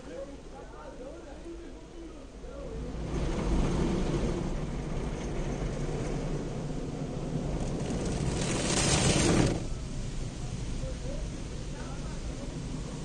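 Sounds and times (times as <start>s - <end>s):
car wash spraying water: 6.2s - 13.0s.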